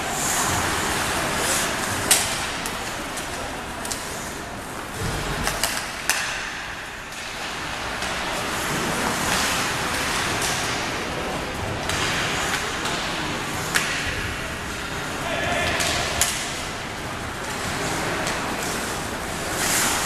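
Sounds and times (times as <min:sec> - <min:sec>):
hockey sticks and puck clacking: 0:00.2 - 0:20.0
skate blades scraping ice: 0:17.4 - 0:20.0.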